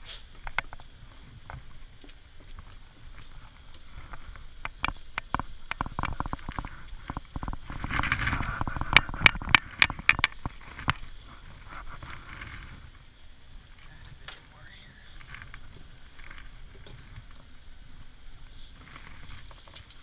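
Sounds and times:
short hissing rush: 0:00.0 - 0:00.3.

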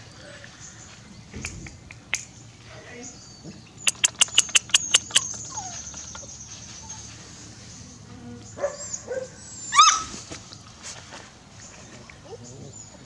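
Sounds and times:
sharp clicks: 0:03.8 - 0:05.3
puppy yelping: 0:03.9 - 0:06.0, 0:08.6 - 0:10.2.

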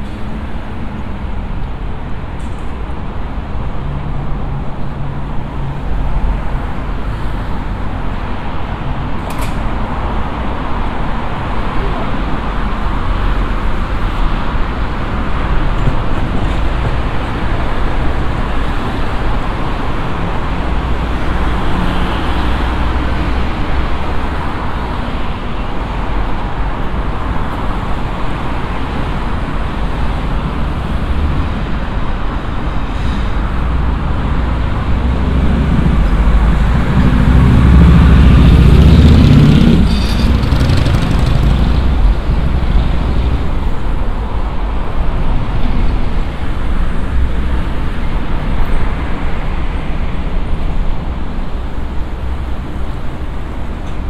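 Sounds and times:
city road traffic: 0:00.0 - 0:54.0
vehicle passing close: 0:33.0 - 0:44.3.

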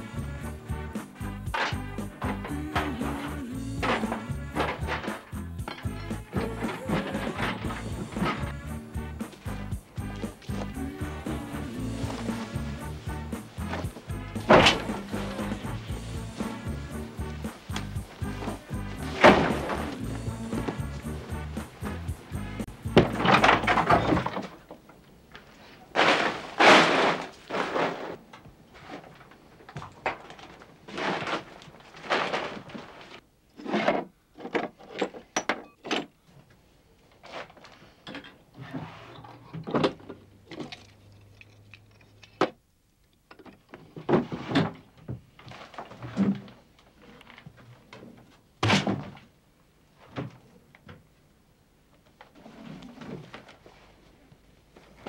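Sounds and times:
wooden drawers knocking and clattering: 0:03.8 - 0:24.9, 0:26.0 - 0:36.1, 0:39.2 - 0:41.0, 0:43.3 - 0:46.6, 0:47.5 - 0:49.3.

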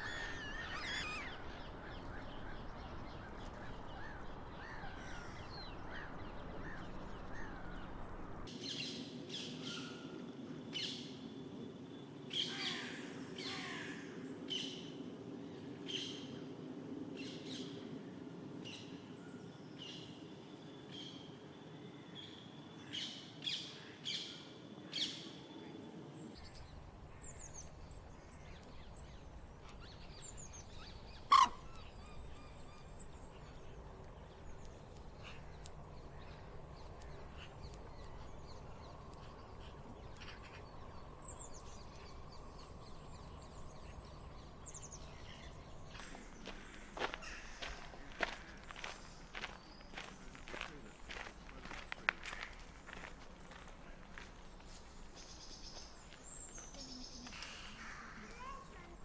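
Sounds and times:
birds chirping: 0:00.0 - 0:10.3, 0:24.0 - 0:59.0.

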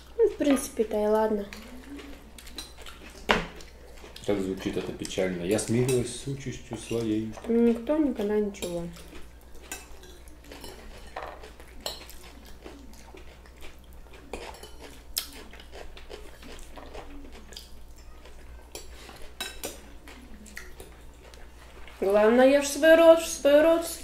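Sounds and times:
cutlery clinking on plates: 0:09.6 - 0:12.2, 0:18.7 - 0:19.8.

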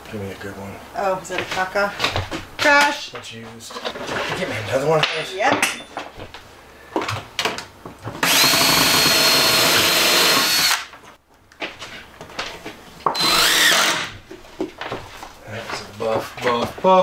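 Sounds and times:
cordless drill whining: 0:08.2 - 0:10.9, 0:13.2 - 0:14.2.

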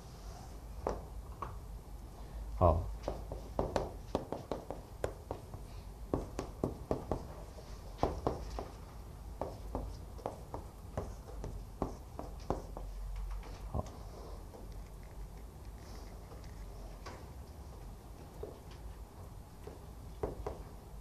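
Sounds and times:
chalk tapping and scraping on chalkboard: 0:03.0 - 0:13.2.

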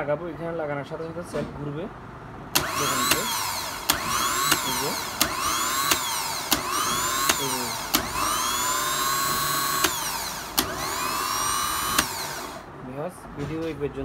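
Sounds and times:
starter motor whine: 0:02.5 - 0:12.7.

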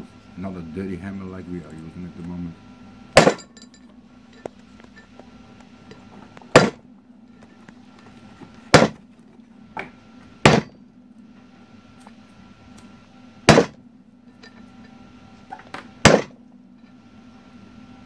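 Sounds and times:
rubber mallet striking metal: 0:03.2 - 0:03.5, 0:06.6 - 0:06.8, 0:08.7 - 0:09.0, 0:10.5 - 0:10.8, 0:13.5 - 0:13.8, 0:16.0 - 0:16.4.

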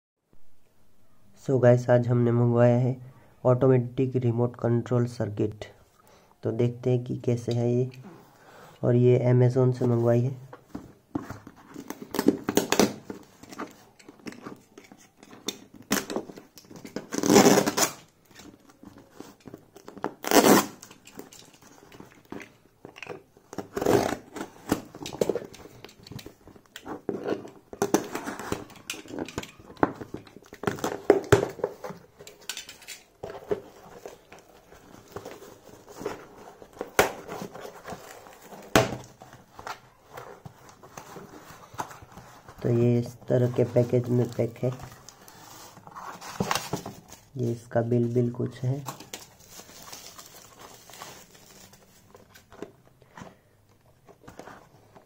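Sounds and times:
cardboard rustling and tearing: 0:15.7 - 0:22.6, 0:23.5 - 0:32.5, 0:33.1 - 0:47.3, 0:48.7 - 0:52.7.

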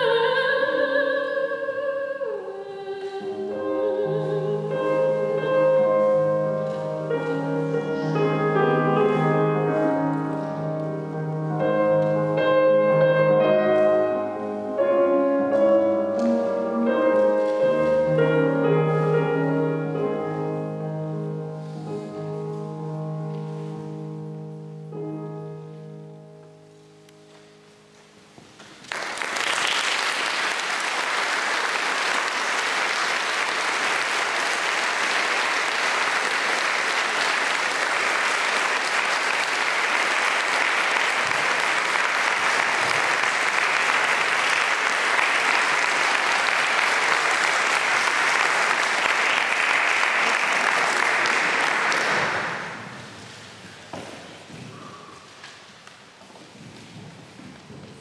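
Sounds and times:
grand piano chords ringing: 0:03.3 - 0:28.8
audience applauding: 0:28.8 - 0:53.2.

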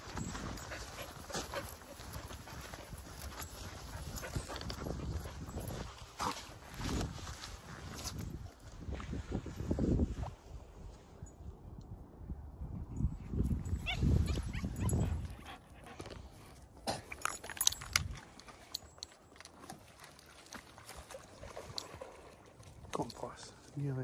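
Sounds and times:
wind rumble on microphone: 0:00.0 - 0:16.3
dogs whining: 0:13.6 - 0:15.9.

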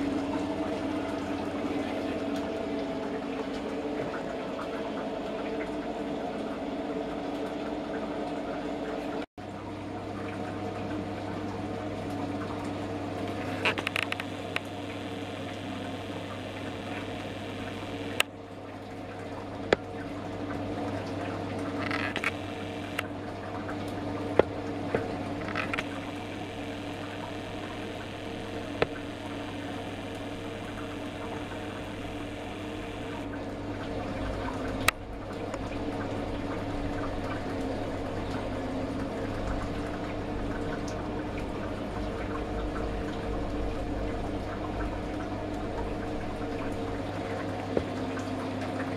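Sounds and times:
steady hum: 0:00.0 - 0:48.9
sharp clicks: 0:13.6 - 0:18.3.

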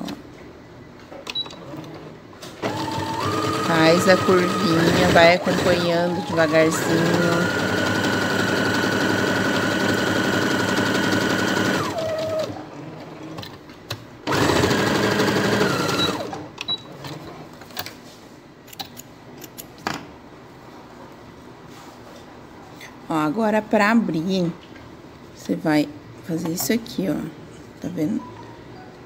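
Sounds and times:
sewing machine running: 0:02.6 - 0:12.6, 0:14.3 - 0:16.4.

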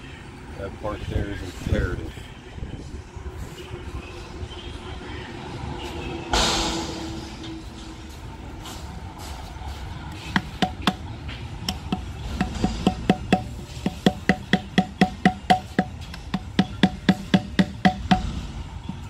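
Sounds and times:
mallet tapping metal: 0:10.4 - 0:18.5.

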